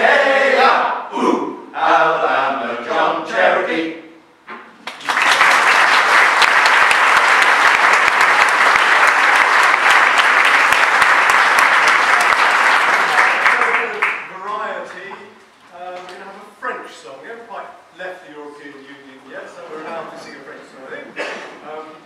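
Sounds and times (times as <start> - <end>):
men's choir singing: 0.0 - 4.1
audience applause: 4.8 - 14.3.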